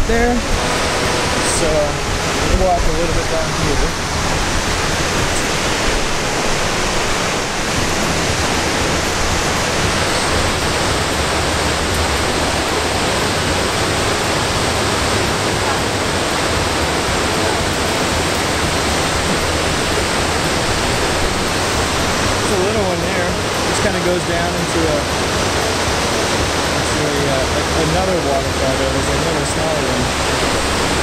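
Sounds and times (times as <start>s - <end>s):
waterfall rushing: 0.0s - 31.0s.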